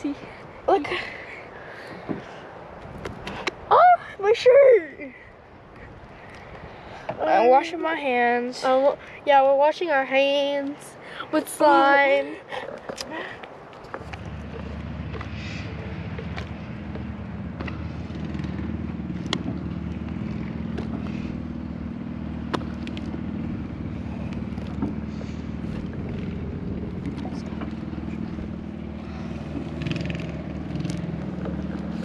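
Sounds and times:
engine running steadily: 11.0 - 32.0.

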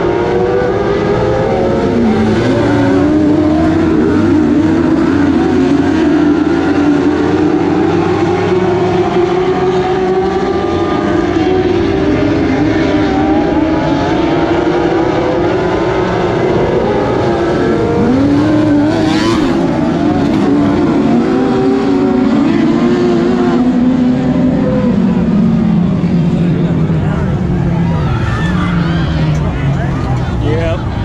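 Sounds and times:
race car engines: 0.0 - 31.0.

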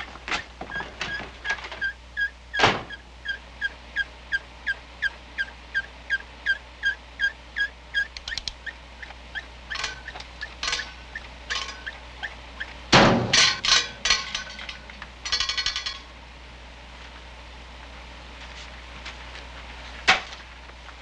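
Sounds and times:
air conditioner fan squeaking: 0.0 - 16.3.

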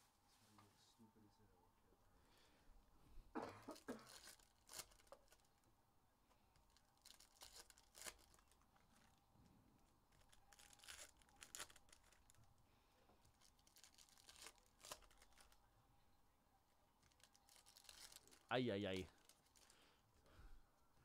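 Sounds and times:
plastic wrappers crinkling and tearing: 3.7 - 5.6, 6.5 - 9.2, 9.8 - 12.6, 13.2 - 15.6, 17.0 - 20.2.

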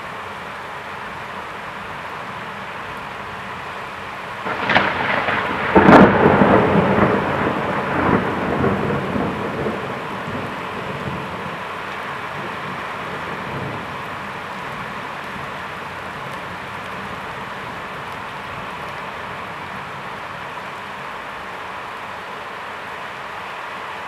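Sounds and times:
steady rain: 0.0 - 24.0
thunder crack and rumble: 4.4 - 11.6.

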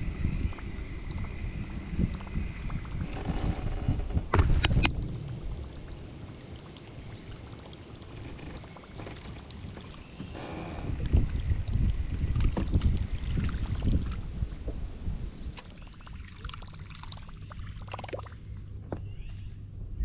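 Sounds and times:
low rumble: 0.0 - 20.0
sharp clicks and knocks: 3.0 - 5.0
water sloshing against kayak hull: 5.9 - 15.0.

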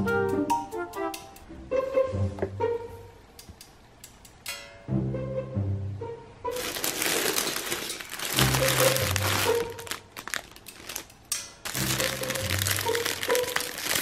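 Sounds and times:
background music: 0.0 - 3.5, 4.4 - 10.4, 11.6 - 14.0
plastic bag crinkling: 6.5 - 14.0.

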